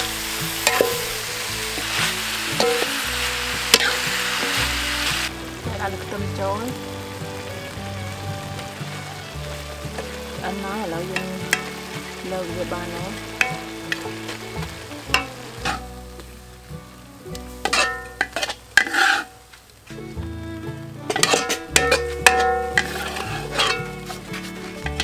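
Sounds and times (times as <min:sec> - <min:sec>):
metal spatula scraping a pan: 0:00.0 - 0:06.2, 0:13.3 - 0:16.0, 0:17.5 - 0:19.5, 0:21.1 - 0:25.0
food sizzling in a wok: 0:00.0 - 0:25.0.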